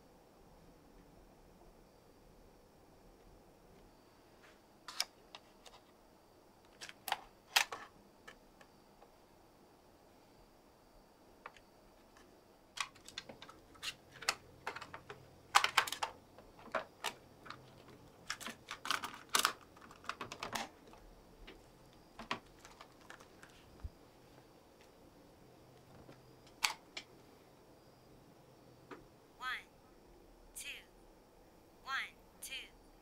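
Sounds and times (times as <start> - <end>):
plastic cassette clicks and taps: 14.2 - 17.6, 18.2 - 20.7.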